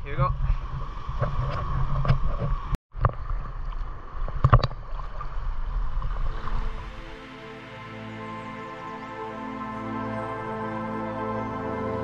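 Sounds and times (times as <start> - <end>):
water splashes: 0.0 - 7.7
water sloshing and lapping: 0.2 - 7.3
soft background music: 6.3 - 12.0.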